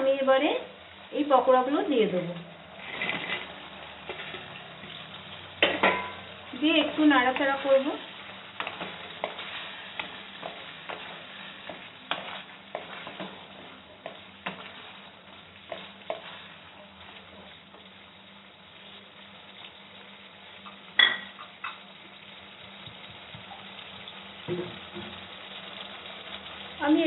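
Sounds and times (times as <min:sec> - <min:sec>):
sauce sizzling and bubbling: 0:00.0 - 0:27.0
spatula scraping and knocking pan: 0:02.8 - 0:05.0, 0:05.6 - 0:07.7, 0:08.5 - 0:16.6
sharp ringing knock on pan: 0:05.6 - 0:06.2, 0:21.0 - 0:21.4.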